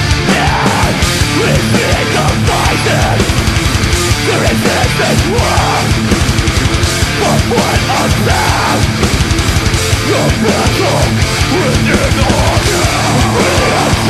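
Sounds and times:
distorted electric guitars: 0.0 - 14.0.

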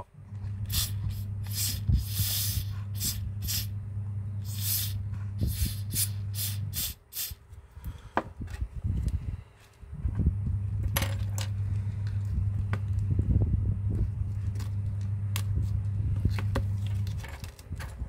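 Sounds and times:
steady low hum: 0.0 - 18.0
spray can hissing squirts: 0.7 - 3.7, 4.4 - 7.4.

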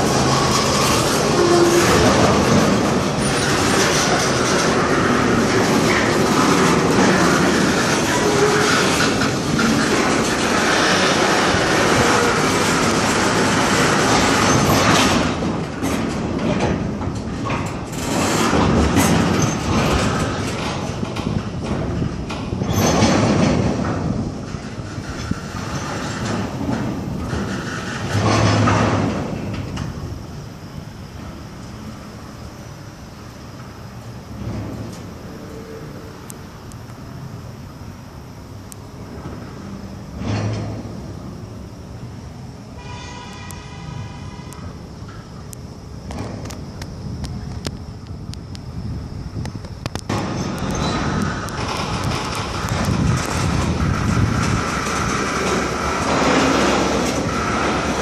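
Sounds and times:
high-pitched wheel squeal: 0.0 - 5.2, 42.7 - 44.8
freight train rumbling on track: 0.0 - 58.0
train cars creaking: 0.0 - 58.0.

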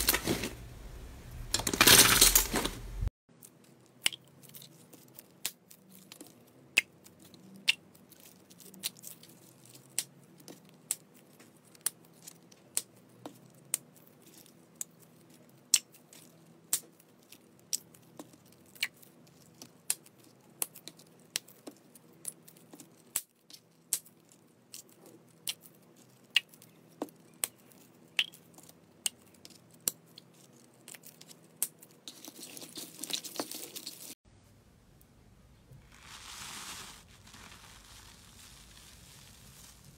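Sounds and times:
crinkling and squishing: 0.0 - 0.7, 1.5 - 34.2, 35.7 - 39.9
plastic bags of slime squeezed: 35.8 - 39.9.

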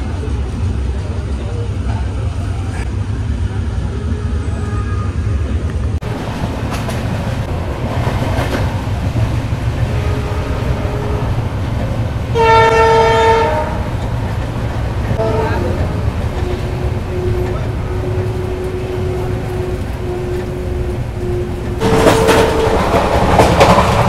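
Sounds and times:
passenger train rumbling: 0.0 - 24.0
train horn blast: 9.8 - 11.5, 12.3 - 14.0, 15.2 - 23.0.

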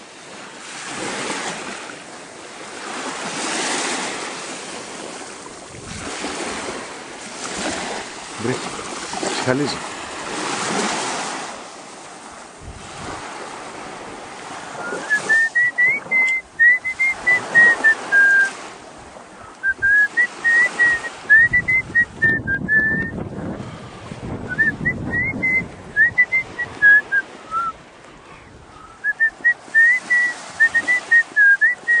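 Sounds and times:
small waves breaking on sand: 0.0 - 32.0
person whistling a tune: 14.8 - 18.6, 19.6 - 23.2, 24.5 - 27.8, 29.0 - 32.0.

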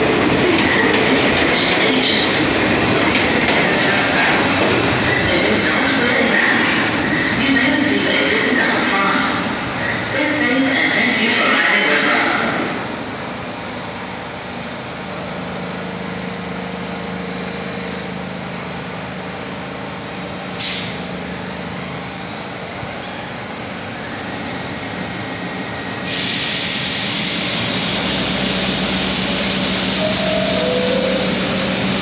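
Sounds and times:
subway train rumbling in tunnel: 0.0 - 32.0
brief hiss: 20.5 - 21.0.

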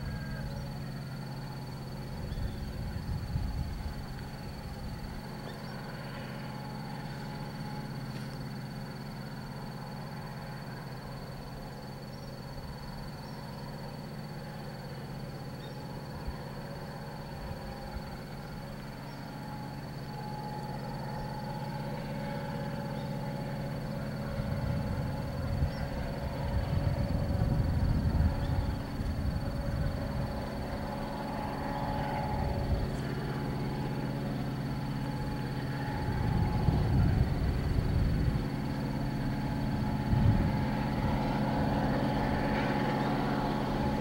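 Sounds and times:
steady low drone: 0.0 - 44.0.

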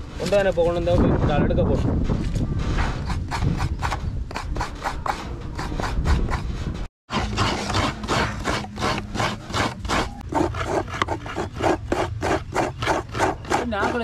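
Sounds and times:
coconut grater rasping: 7.1 - 14.0.

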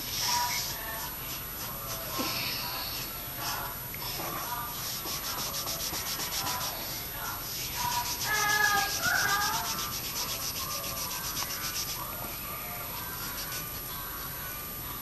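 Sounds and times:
marker scribbling on board: 4.2 - 12.1, 13.0 - 13.8.

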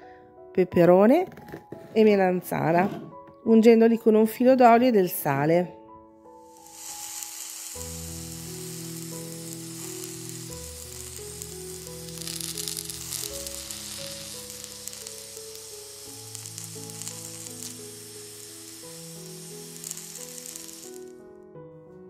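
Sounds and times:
background music with slow chords: 0.0 - 22.0
vegetables sizzling on grill pan: 6.5 - 21.1.

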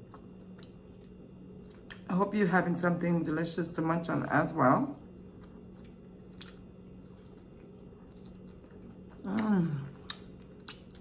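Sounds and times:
closed-mouth hum: 0.0 - 11.0
close chewing: 5.4 - 11.0.

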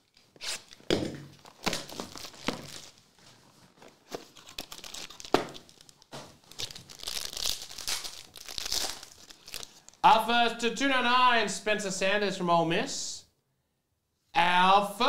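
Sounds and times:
foil pack crinkling and tearing: 1.4 - 10.0.

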